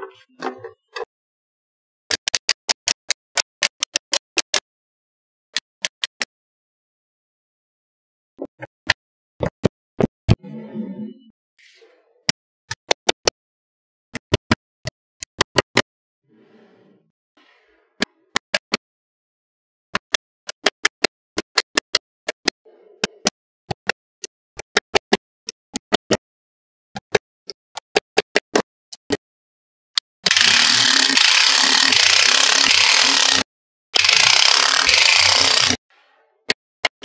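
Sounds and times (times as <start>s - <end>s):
loud continuous rasping noise: 30.3s - 35.8s.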